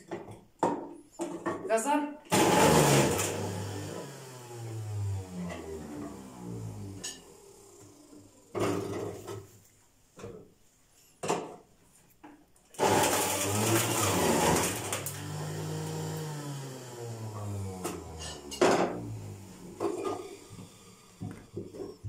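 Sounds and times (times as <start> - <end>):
juicer motor humming: 2.3 - 9.5, 12.8 - 22.0.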